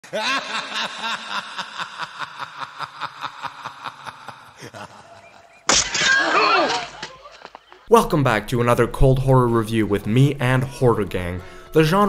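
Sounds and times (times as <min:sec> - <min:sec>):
person laughing: 0:00.0 - 0:05.7.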